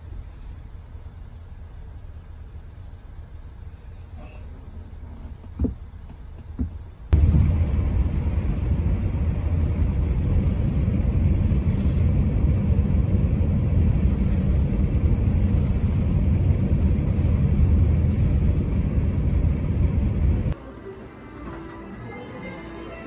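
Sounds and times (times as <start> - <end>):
engine and tyre rumble: 0.0 - 20.6.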